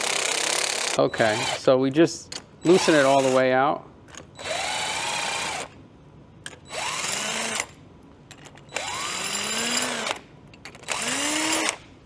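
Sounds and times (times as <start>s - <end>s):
cordless drill whining: 4.4s - 5.7s, 6.6s - 7.8s, 8.7s - 10.2s, 10.8s - 11.8s.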